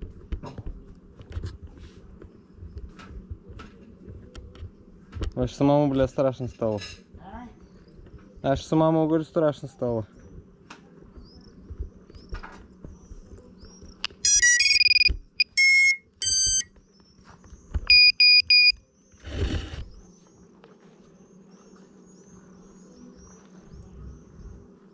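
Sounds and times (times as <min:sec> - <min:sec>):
electronic beeps: 0:14.1 - 0:16.7, 0:17.9 - 0:18.8.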